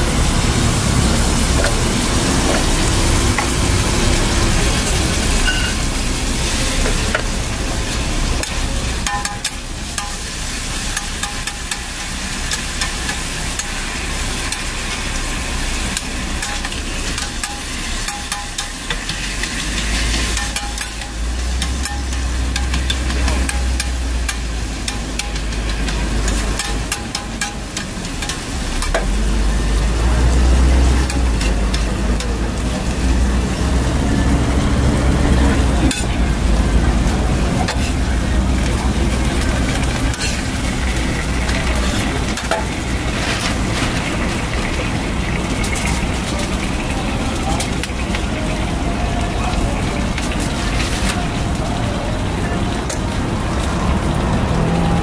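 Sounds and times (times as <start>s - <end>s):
food sizzling on a griddle: 0.0s - 55.0s
metal spatula scraping hot plate: 15.8s - 29.0s.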